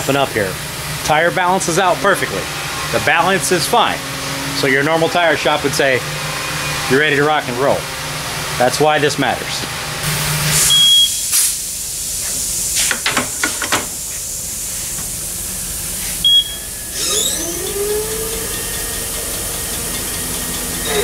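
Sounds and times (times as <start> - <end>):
wheel balancer spinning whine: 0.0 - 21.0
short beep: 10.6 - 11.2, 16.2 - 16.7.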